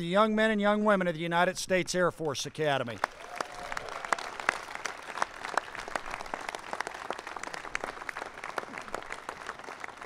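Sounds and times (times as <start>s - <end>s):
crowd applauding: 2.9s - 10.0s.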